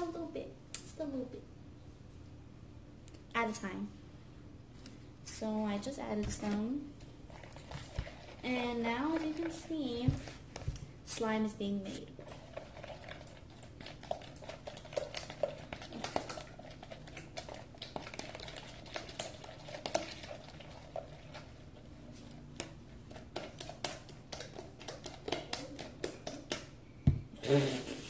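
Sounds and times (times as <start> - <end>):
utensil stirring slime in bowl: 6.1 - 26.8.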